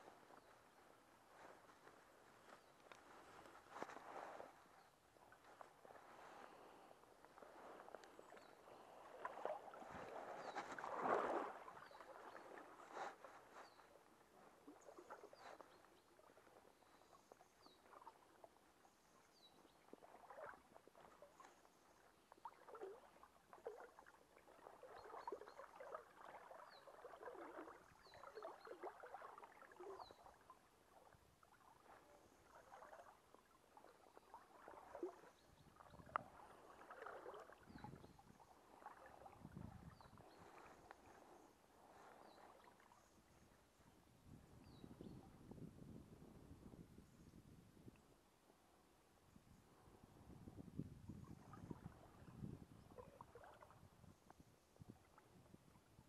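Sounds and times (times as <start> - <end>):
river water sloshing: 0.0 - 43.8, 51.3 - 53.9.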